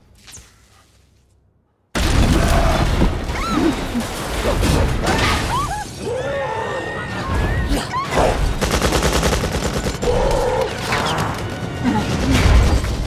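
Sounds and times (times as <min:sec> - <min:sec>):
crashing rumbling destruction: 0:02.0 - 0:05.7
people screaming in panic: 0:05.4 - 0:08.4.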